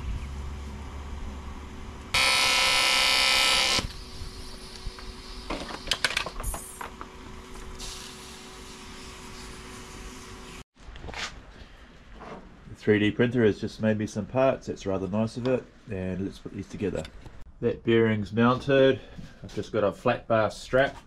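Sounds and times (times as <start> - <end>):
welding arc buzzing: 2.0 - 5.9, 7.5 - 10.6.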